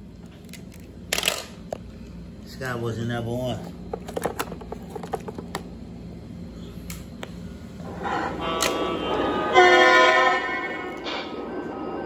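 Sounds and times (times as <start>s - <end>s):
toy train horn chord: 8.0s - 11.3s.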